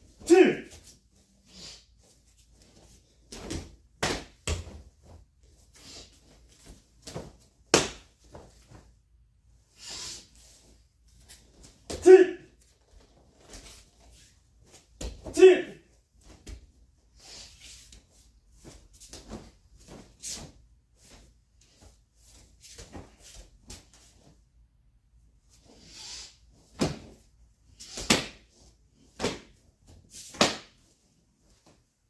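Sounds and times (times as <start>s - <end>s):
sharp slaps and snaps: 7.7s - 8.1s, 28.0s - 28.4s, 30.3s - 30.8s.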